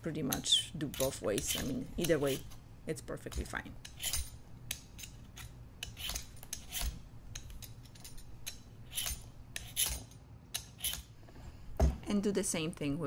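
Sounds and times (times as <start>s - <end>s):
vegetable peeler scraping squash: 0.3s - 2.5s, 5.0s - 8.2s, 8.8s - 11.1s.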